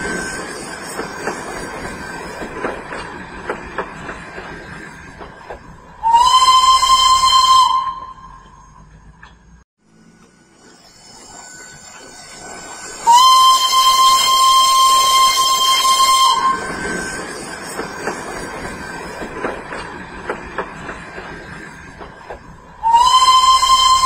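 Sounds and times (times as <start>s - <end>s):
steam whistle blast: 6.0s - 8.8s, 12.6s - 17.1s, 22.8s - 24.0s
steam hissing: 9.9s - 24.0s.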